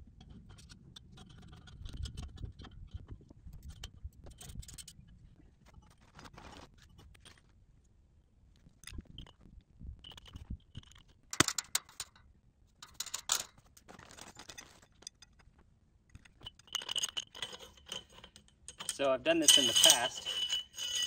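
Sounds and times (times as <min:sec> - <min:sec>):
metal pipes and tools clinking: 0:12.8 - 0:15.5, 0:16.1 - 0:21.0.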